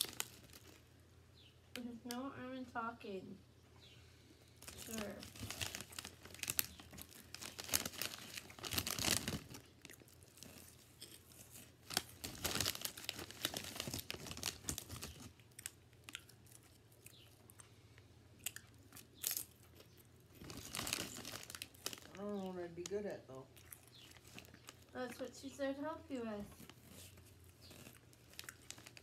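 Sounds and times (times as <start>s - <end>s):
plastic snack bag crinkling: 0.0s - 0.9s, 4.6s - 17.2s, 18.5s - 29.0s
sharp crackles: 4.6s - 16.2s, 20.3s - 25.1s.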